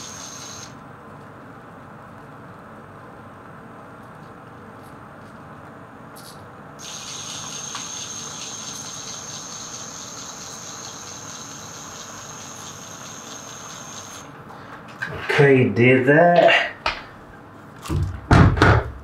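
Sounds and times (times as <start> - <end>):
electric motor high-pitched whine: 0.0 - 0.8.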